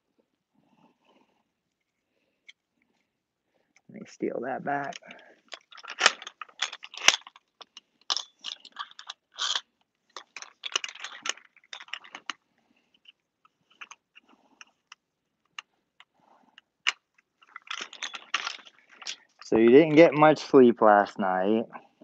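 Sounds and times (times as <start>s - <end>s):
knee brace rustling and scraping: 4.8s - 20.2s
plastic clicks: 13.0s - 19.5s.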